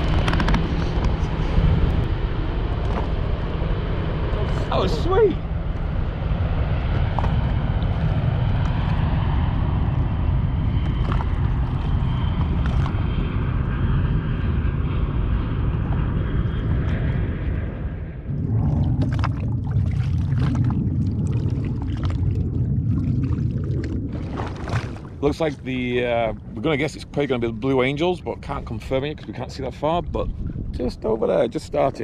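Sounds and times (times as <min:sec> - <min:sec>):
low-flying aircraft engine: 0:00.0 - 0:32.0
wind rumbling on microphone: 0:00.0 - 0:32.0
small waves splashing: 0:18.6 - 0:25.5.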